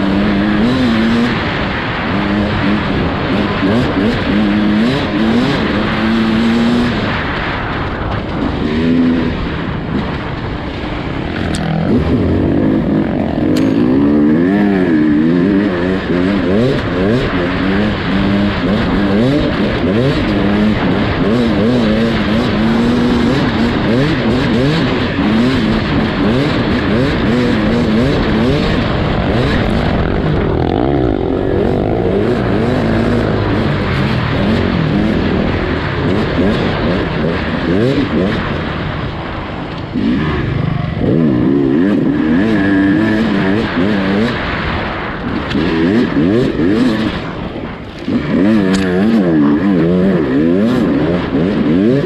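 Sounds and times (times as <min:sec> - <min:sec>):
motorcycle engine revving: 0:00.0 - 0:52.0
trail noise: 0:00.0 - 0:52.0
wind rushing: 0:27.9 - 0:52.0.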